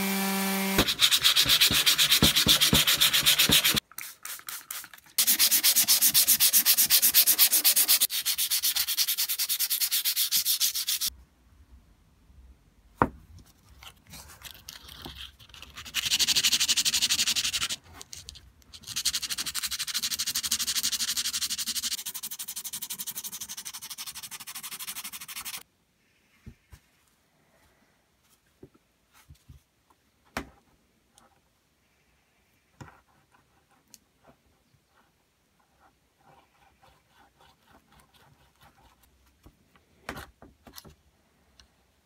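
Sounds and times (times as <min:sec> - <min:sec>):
sandpaper rasping on metal: 0:00.8 - 0:03.8, 0:05.2 - 0:11.1.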